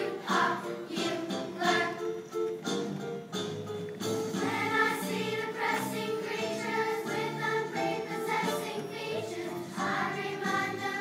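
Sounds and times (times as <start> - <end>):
girls singing together: 0.0 - 2.0, 4.4 - 11.0
instrumental accompaniment: 0.0 - 11.0.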